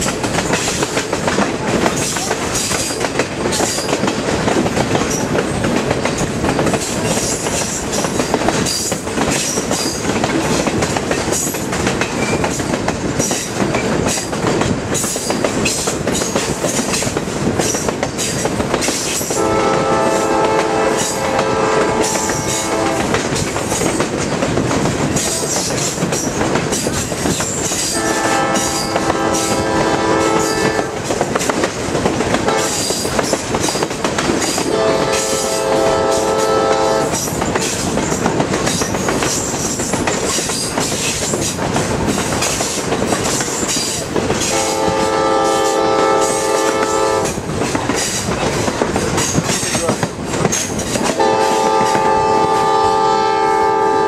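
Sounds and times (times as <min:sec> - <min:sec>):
train wheels clickety-clack on rails: 0:00.0 - 0:54.0
locomotive horn blasts: 0:19.4 - 0:23.2, 0:27.9 - 0:31.0, 0:32.5 - 0:32.9, 0:34.7 - 0:37.2, 0:44.5 - 0:47.4, 0:51.1 - 0:54.0.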